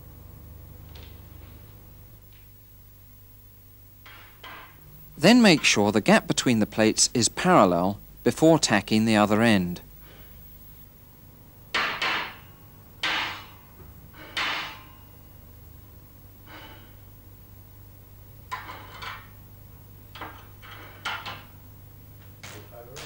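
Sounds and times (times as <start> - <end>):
steel sheets knocking on workbench: 4.0 - 4.8, 11.8 - 13.7.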